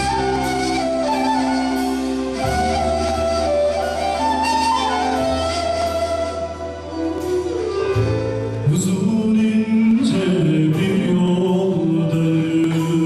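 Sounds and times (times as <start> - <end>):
live band playing: 0.0 - 13.0
man singing: 8.5 - 13.0.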